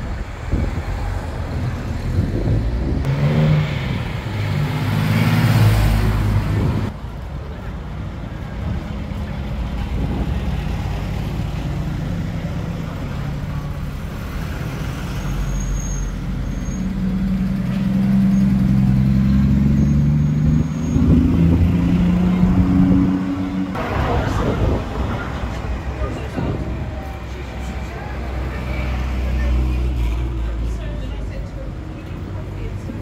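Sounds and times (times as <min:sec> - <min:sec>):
car engine passing and pulling away: 0:00.0 - 0:07.0, 0:08.4 - 0:31.0.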